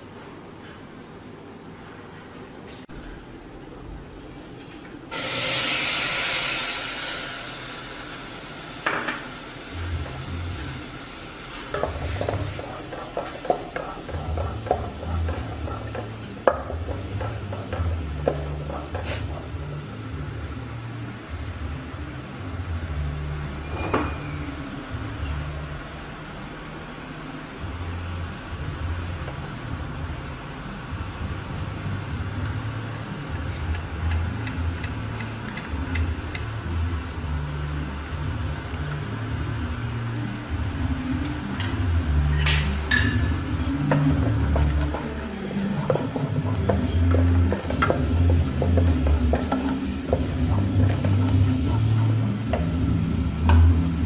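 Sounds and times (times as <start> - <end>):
low hum: 2.8 - 54.0
steady low rumble: 6.2 - 23.6.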